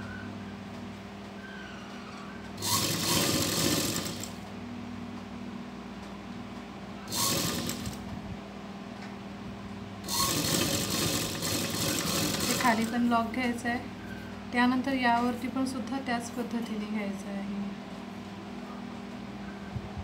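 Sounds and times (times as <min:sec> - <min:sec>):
steady low hum: 0:00.0 - 0:20.0
sewing machine stitching: 0:02.6 - 0:04.4, 0:07.1 - 0:08.0, 0:10.1 - 0:13.0.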